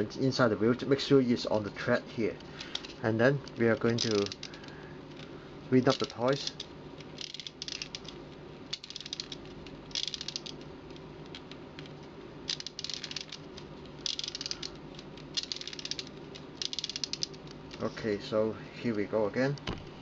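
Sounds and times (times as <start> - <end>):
wind-up toy ratcheting clicks: 3.9 - 4.6, 5.9 - 10.6, 12.5 - 13.4, 14.0 - 17.4.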